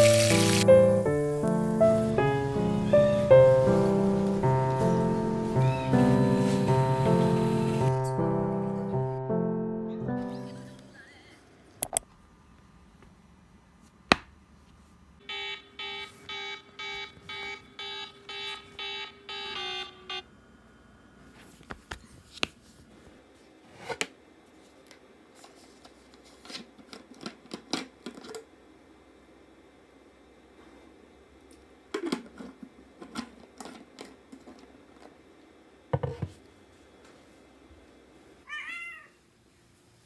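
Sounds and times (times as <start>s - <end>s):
electronic alarm beeping: 15.2s - 20.3s.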